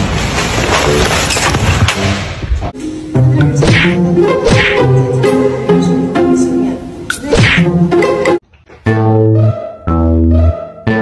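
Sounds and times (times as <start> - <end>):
background music: 1.9 - 11.0
tune of held notes: 7.8 - 11.0.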